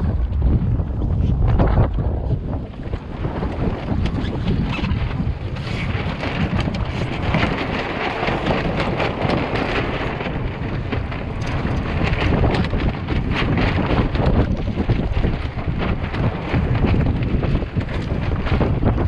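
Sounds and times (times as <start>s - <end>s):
water splashing against hull: 0.0s - 19.0s
wind buffeting microphone: 0.0s - 19.0s.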